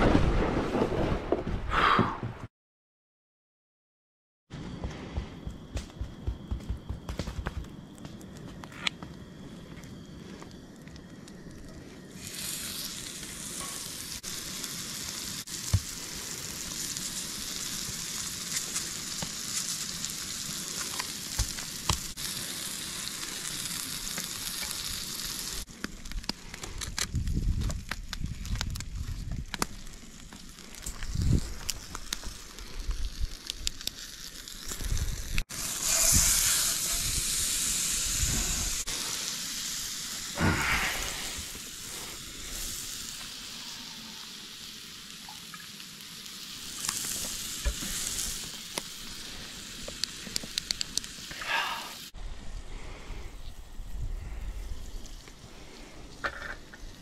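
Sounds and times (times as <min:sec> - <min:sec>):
low thumps and crackles: 0:04.5 - 0:10.6
food sizzling in oil: 0:12.1 - 0:25.7, 0:29.8 - 0:52.2.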